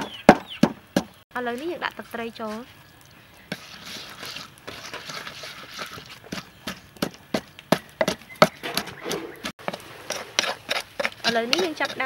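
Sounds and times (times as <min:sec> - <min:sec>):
wooden pestle pounding: 0:00.0 - 0:01.2, 0:05.8 - 0:12.0
liquid swishing in paste: 0:03.5 - 0:06.9, 0:08.8 - 0:12.0.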